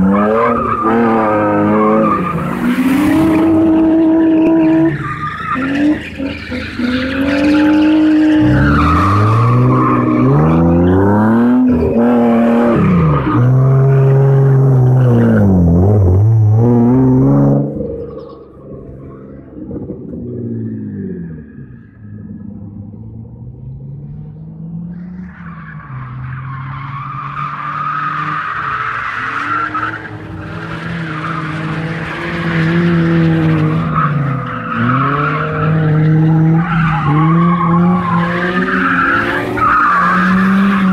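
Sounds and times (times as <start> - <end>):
tyres squealing and skidding: 0.0 - 22.5, 24.9 - 40.9
car engine revving: 0.0 - 26.2.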